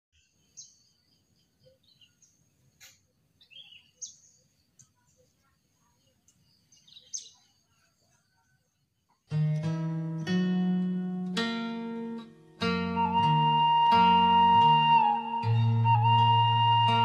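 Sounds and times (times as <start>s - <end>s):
faint birdsong chirps: 0.2s - 9.4s.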